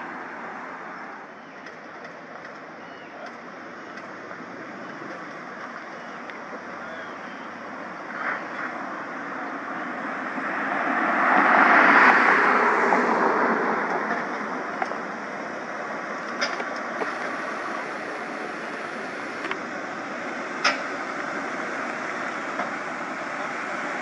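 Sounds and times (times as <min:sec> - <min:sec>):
steady background noise: 0:00.0 - 0:24.0
vehicle passing by: 0:08.1 - 0:15.4.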